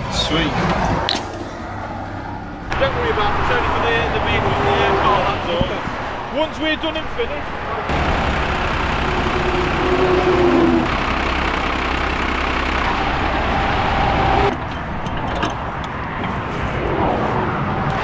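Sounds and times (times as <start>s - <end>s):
engine hum: 0.0s - 18.0s
motorway traffic: 0.0s - 18.0s.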